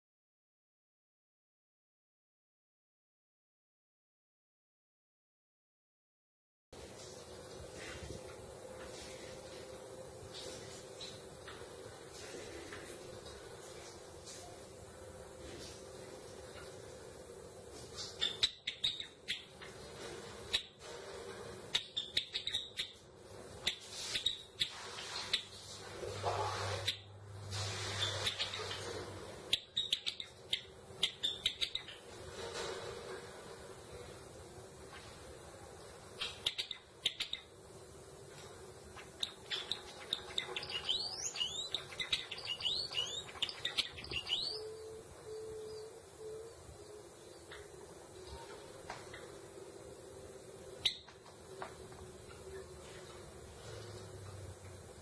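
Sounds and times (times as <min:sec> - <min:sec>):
sparrow chipping calls: 0:18.0 - 0:19.8, 0:21.8 - 0:23.0, 0:23.6 - 0:25.5, 0:29.5 - 0:32.1, 0:36.1 - 0:37.5, 0:39.0 - 0:45.9.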